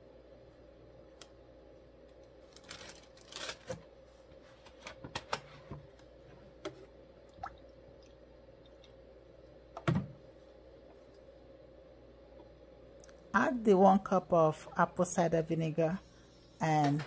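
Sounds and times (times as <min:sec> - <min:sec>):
plastic bag rustling: 0:02.4 - 0:03.9.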